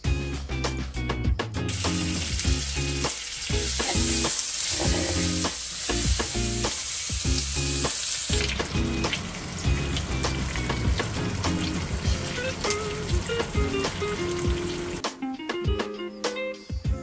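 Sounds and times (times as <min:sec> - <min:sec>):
background music: 0:00.0 - 0:17.0
steak sizzling in a pan: 0:01.7 - 0:15.0.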